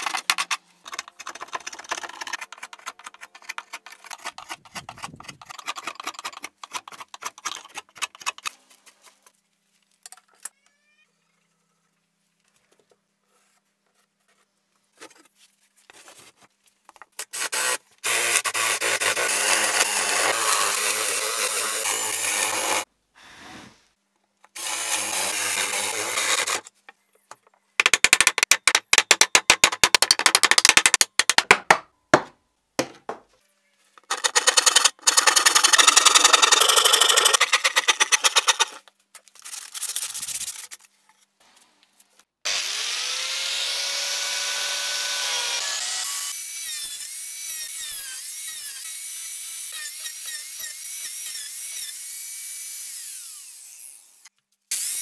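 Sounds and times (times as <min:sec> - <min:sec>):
electric drill boring into wood: 0:42.5 - 0:55.0.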